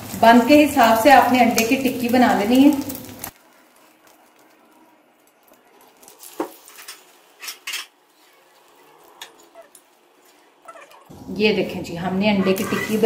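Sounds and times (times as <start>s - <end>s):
faint oil sizzle: 0.0s - 11.7s
metal utensil scraping pan: 6.6s - 8.4s.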